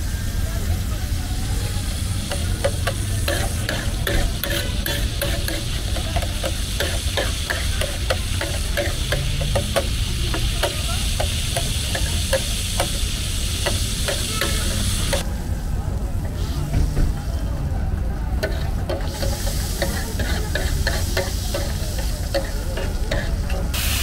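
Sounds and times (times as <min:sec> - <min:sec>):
liver sizzling in oil: 0:01.8 - 0:15.2, 0:18.4 - 0:24.0
metal spatula scraping on metal: 0:02.3 - 0:13.0, 0:18.4 - 0:23.8.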